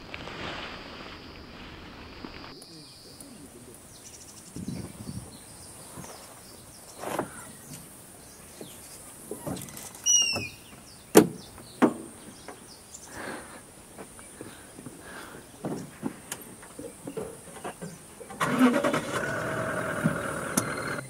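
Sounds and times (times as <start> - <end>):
short bird call: 10.0 - 10.7.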